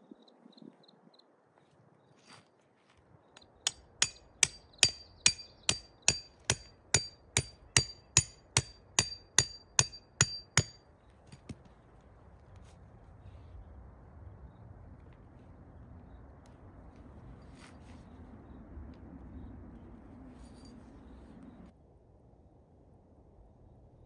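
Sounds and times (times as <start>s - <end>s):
hammer striking metal: 3.6s - 11.5s.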